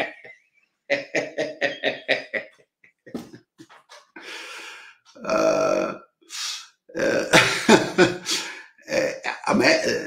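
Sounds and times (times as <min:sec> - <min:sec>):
man laughing: 0:00.0 - 0:03.4, 0:07.1 - 0:08.6
breathy exhale: 0:04.2 - 0:05.0.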